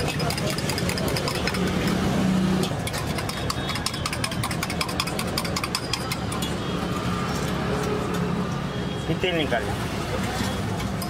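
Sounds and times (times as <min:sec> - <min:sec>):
utensils tapping steel pots: 0:00.0 - 0:07.5
street traffic hum: 0:00.0 - 0:11.0.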